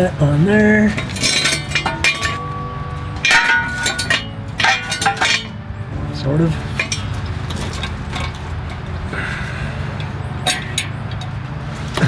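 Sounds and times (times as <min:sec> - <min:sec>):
metal scrape: 0:01.0 - 0:05.6, 0:06.6 - 0:08.9.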